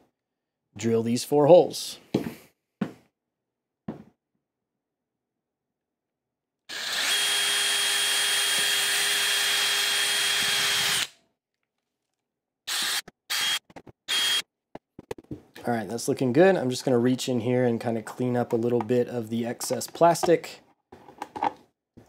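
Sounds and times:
cordless drill drilling plastic: 6.7s - 11.1s, 12.7s - 14.4s.

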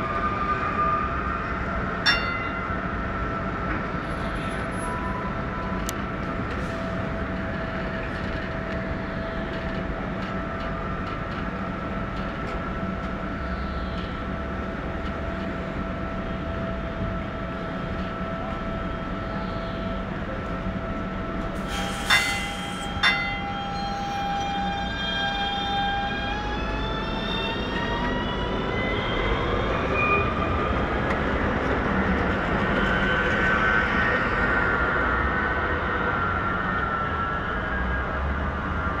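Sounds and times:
higher multi-tone whine: 0.0s - 30.4s.

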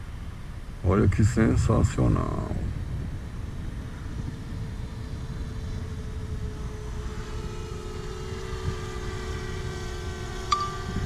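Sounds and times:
drone propellers whining: 1.8s - 11.0s.

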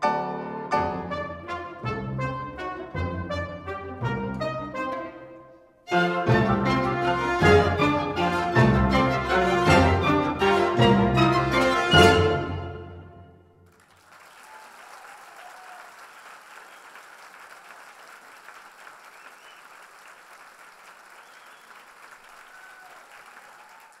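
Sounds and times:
orchestral music chord: 0.0s - 13.5s
audience applauding: 13.6s - 24.0s.

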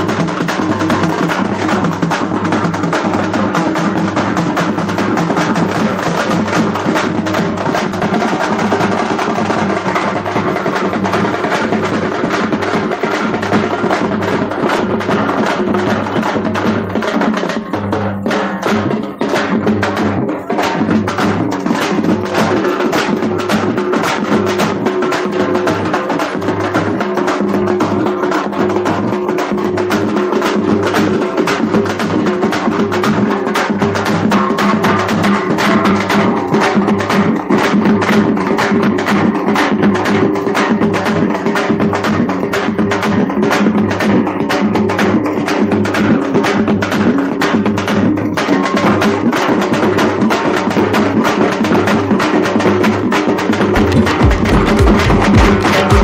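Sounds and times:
fast drum beat: 0.0s - 56.0s
pulsing bass: 53.7s - 56.0s.

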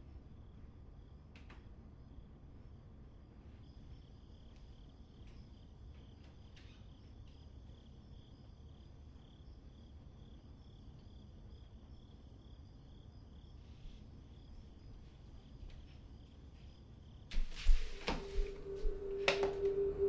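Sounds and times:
insects chirping: 0.0s - 20.0s
low hum: 17.4s - 20.0s.

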